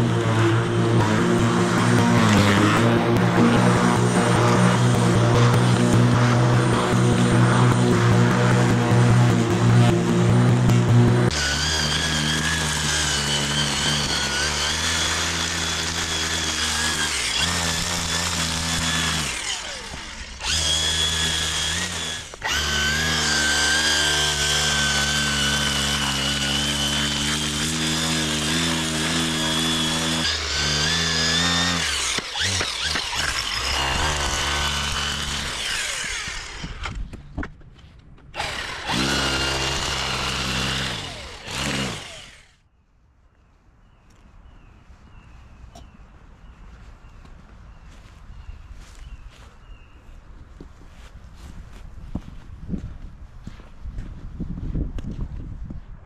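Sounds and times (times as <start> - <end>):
string trimmer whining: 0.0 - 37.3, 38.3 - 42.6.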